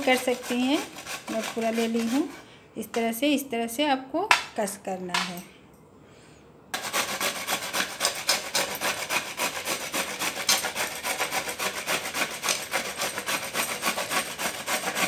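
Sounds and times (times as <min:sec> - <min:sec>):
gourd grating on metal grater: 0:00.0 - 0:02.4, 0:06.8 - 0:15.0.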